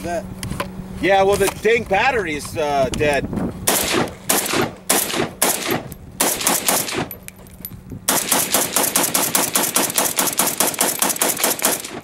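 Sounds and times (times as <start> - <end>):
rifle shots: 3.6 - 7.2, 8.1 - 12.0.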